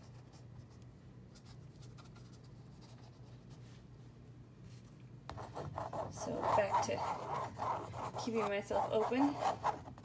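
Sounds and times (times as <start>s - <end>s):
steady low hum: 0.0s - 10.0s
paintbrush scratching on canvas: 5.3s - 10.0s.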